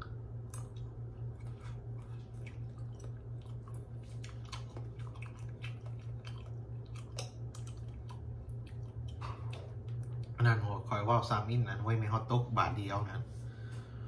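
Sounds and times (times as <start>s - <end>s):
person chewing wetly: 0.0s - 10.4s
steady low hum: 0.0s - 14.0s.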